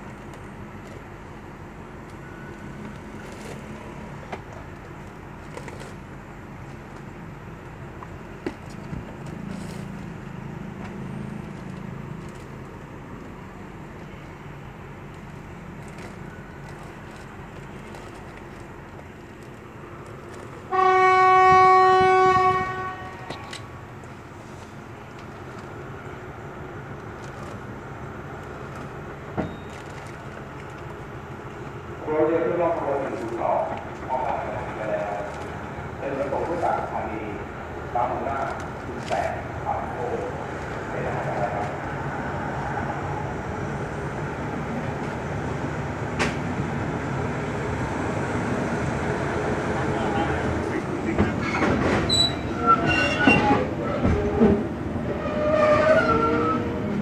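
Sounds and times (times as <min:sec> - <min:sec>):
train horn: 0:20.7 - 0:23.6.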